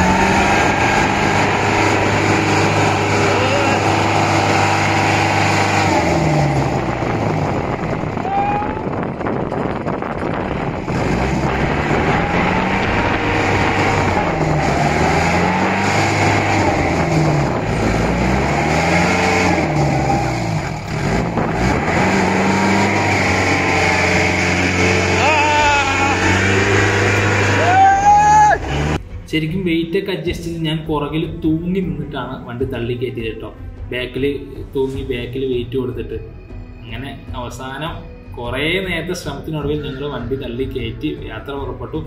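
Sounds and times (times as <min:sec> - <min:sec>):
diesel engine revving: 0:00.0 - 0:29.2.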